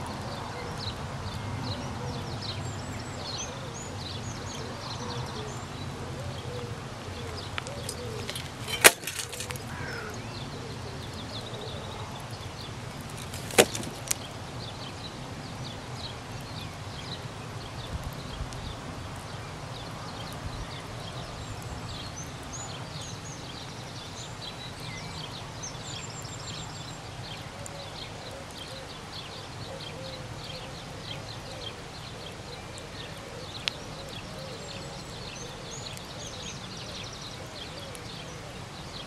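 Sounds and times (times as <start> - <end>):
small birds chirping: 0.0 - 39.0
sharp crack: 7.6 - 10.1, 12.8 - 14.4.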